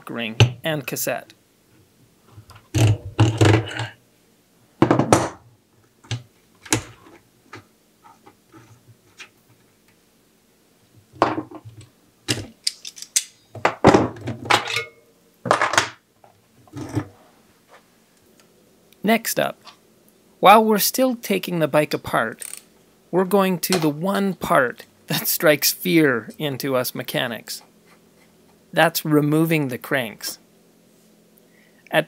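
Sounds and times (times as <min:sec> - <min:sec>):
metal tools clanking: 0:14.5 - 0:15.0.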